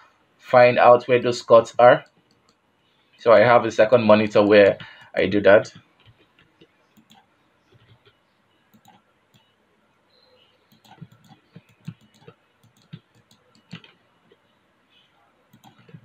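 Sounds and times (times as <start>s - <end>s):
computer mouse and keyboard clicks: 6.0s - 9.5s, 10.7s - 14.4s, 15.5s - 16.0s.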